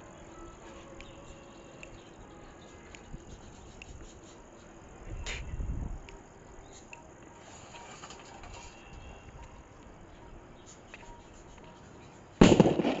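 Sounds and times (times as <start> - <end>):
fuse burning with faint crackle: 0.0 - 13.0
firecracker bang: 12.4 - 13.0.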